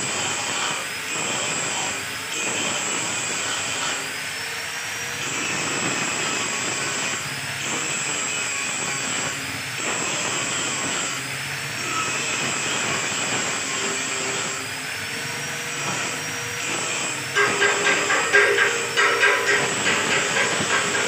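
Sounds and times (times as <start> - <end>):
machinery whining: 11.4 - 21.0.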